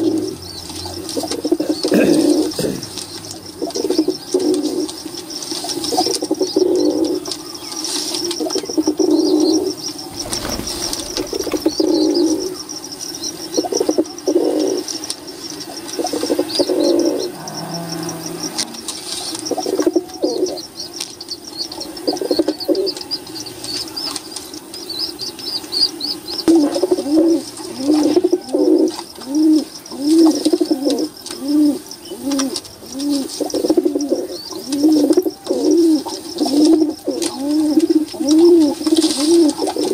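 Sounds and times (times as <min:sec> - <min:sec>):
pigeons cooing: 0:00.0 - 0:07.4, 0:08.2 - 0:12.8, 0:13.5 - 0:20.7, 0:21.8 - 0:23.0, 0:26.2 - 0:39.9
high bird chirping: 0:09.2 - 0:12.7
wings fluttering: 0:10.0 - 0:12.6.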